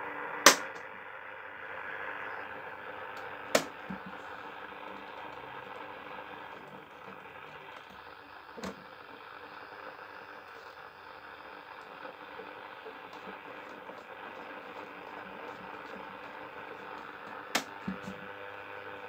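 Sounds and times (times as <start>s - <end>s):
radio static hissing and crackling: 0.0s - 19.0s
sharp clicks: 0.4s - 0.9s, 3.1s - 10.8s, 11.4s - 18.3s.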